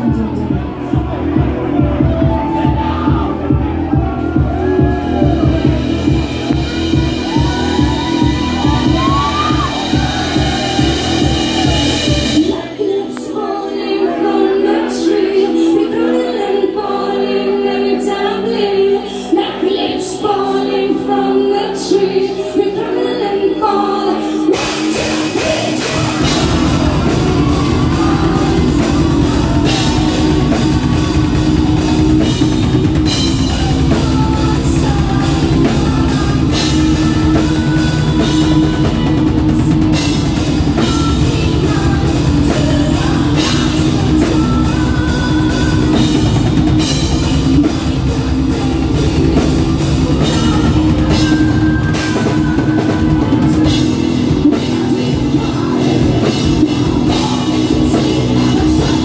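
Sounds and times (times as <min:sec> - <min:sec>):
heavy metal band playing live: 0:00.0 - 0:18.6, 0:24.2 - 0:59.0
person singing: 0:00.0 - 0:59.0
pounding drums: 0:24.6 - 0:41.1.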